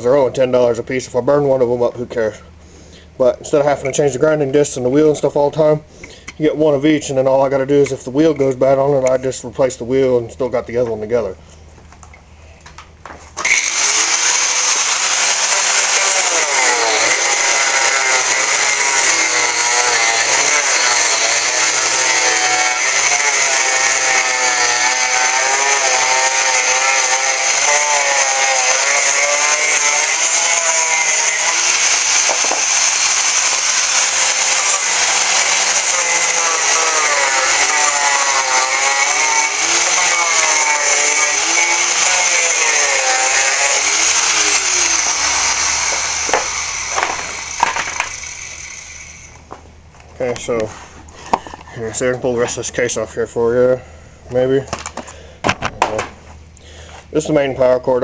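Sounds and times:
angle grinder cutting metal: 0:13.4 - 0:49.5.

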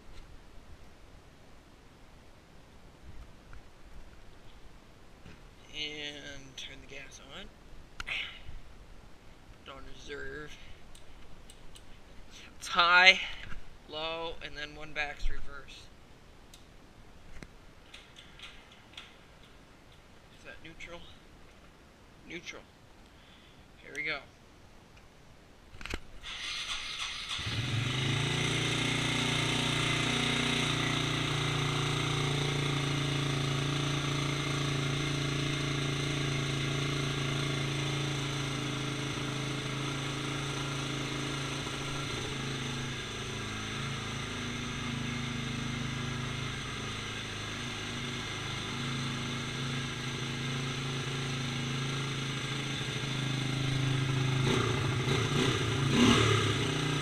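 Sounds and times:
electric starter cranking: 0:26.2 - 0:30.8
engine idling and revving: 0:26.2 - 0:57.0.

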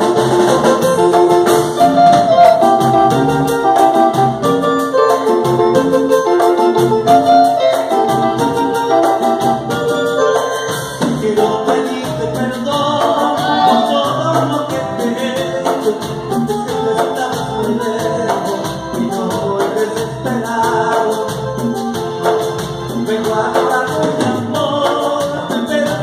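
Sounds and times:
congas: 0:00.0 - 0:26.0
electric guitar: 0:00.0 - 0:26.0
keyboard: 0:00.0 - 0:26.0
man singing: 0:07.2 - 0:26.0.

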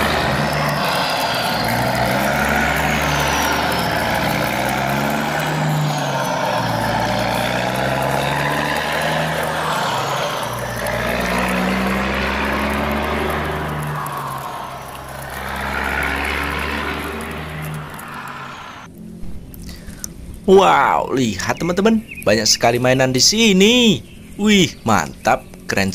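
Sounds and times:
loud rushing noise: 0:00.0 - 0:19.5
heavy truck engine revving: 0:00.0 - 0:20.3.

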